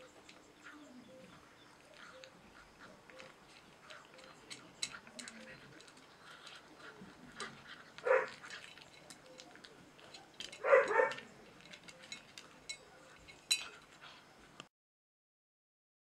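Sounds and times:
kibble crunching in metal bowl: 0:03.1 - 0:14.2
puppy yelp: 0:08.0 - 0:08.4, 0:10.6 - 0:11.2.

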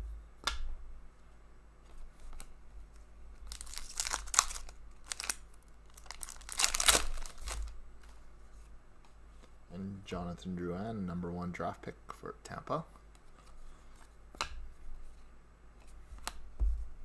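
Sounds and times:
foil wrapper tearing and crinkling: 0:03.5 - 0:07.7.

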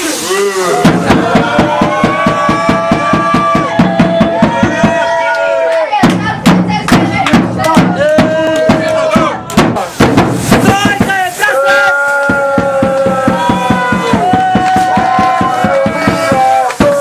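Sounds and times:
song with fast drum beat: 0:00.0 - 0:05.3, 0:05.9 - 0:17.0.

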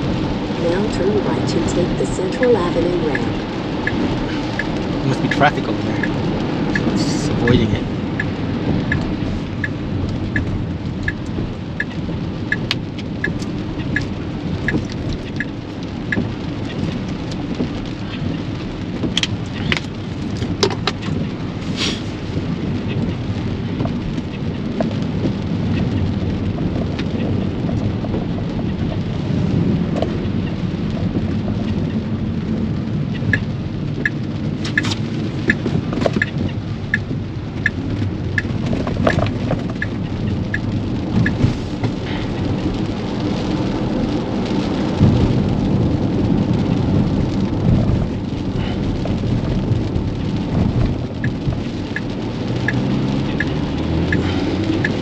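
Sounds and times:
heavy rain on car roof: 0:00.0 - 0:55.0
turn signal ticking: 0:00.0 - 0:55.0
wet road rumble: 0:00.0 - 0:55.0.

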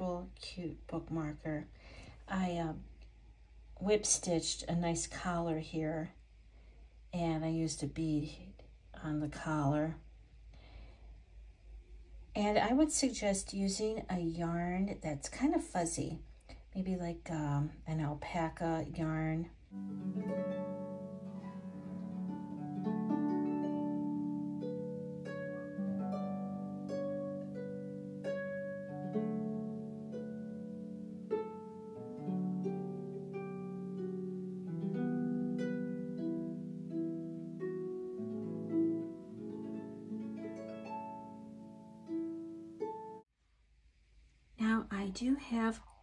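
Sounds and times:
plucked string tune: 0:19.7 - 0:43.2.

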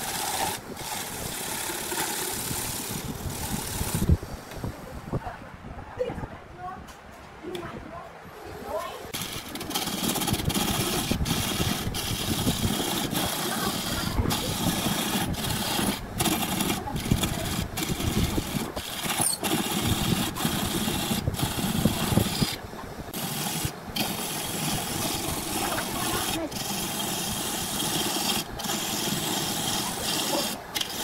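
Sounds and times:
lathe gouge scraping wood: 0:00.0 - 0:04.1, 0:09.1 - 0:31.0.

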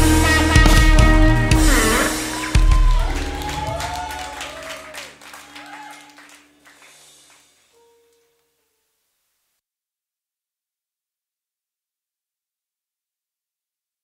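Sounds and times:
band playing closing chord: 0:00.0 - 0:04.2.

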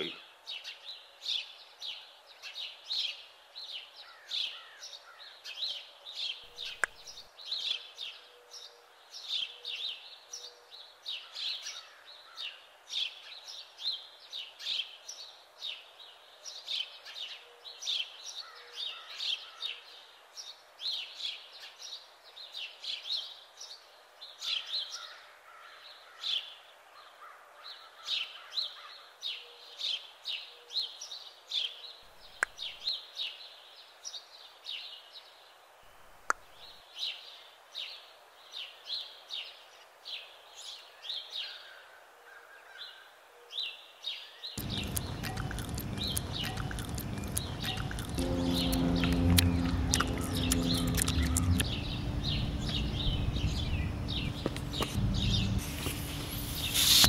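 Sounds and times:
small birds chirping: 0:00.0 - 0:10.6, 0:29.3 - 0:33.5, 0:43.6 - 0:57.0
sharp click: 0:06.6 - 0:07.2.

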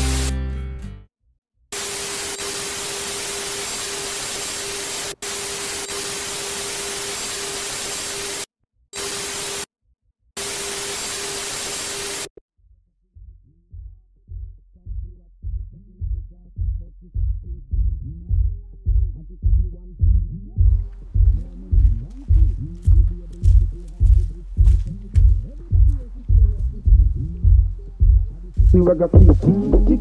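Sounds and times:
loud electronic static hiss: 0:00.0 - 0:00.4, 0:01.8 - 0:09.7, 0:10.4 - 0:12.3.

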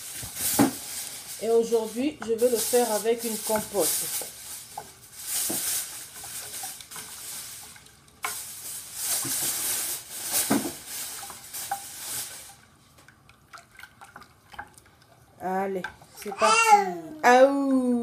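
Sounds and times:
spoon stirring porridge: 0:11.1 - 0:16.4.

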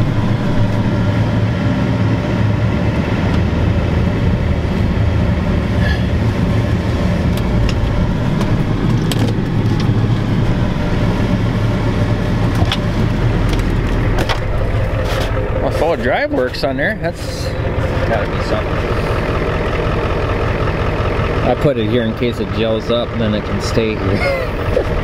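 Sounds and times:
diesel engine drone: 0:00.0 - 0:25.0.

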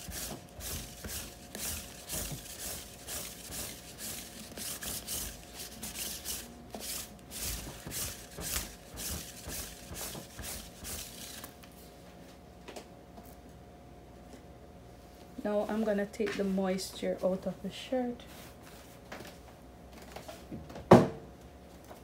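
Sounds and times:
lint roller rasping over fabric: 0:00.0 - 0:11.5.

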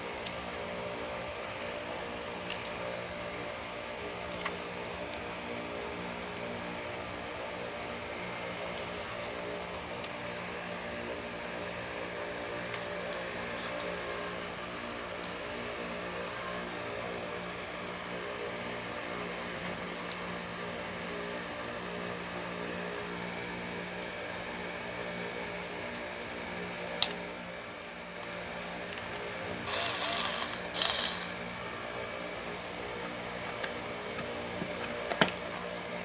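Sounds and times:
steady mechanical hum: 0:00.0 - 0:36.0.

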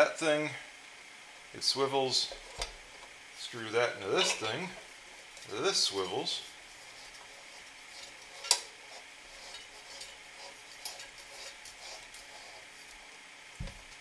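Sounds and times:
faint scrapes and ticks: 0:06.7 - 0:13.1.

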